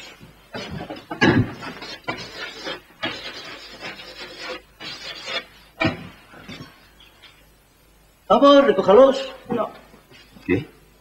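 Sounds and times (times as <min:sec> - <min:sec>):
thump: 0:01.1 - 0:01.6
chalk scratching on blackboard: 0:01.6 - 0:05.6.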